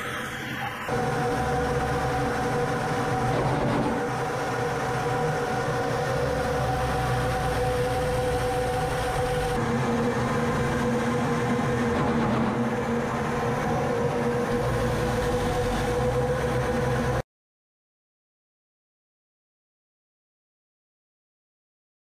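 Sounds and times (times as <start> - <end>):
airflow rush in cockpit: 0.0 - 17.2
jet engine drone: 0.0 - 17.2.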